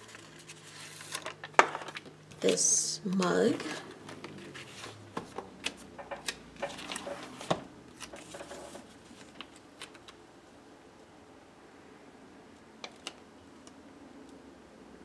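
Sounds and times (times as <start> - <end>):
paper pages rustling: 0.0 - 10.2.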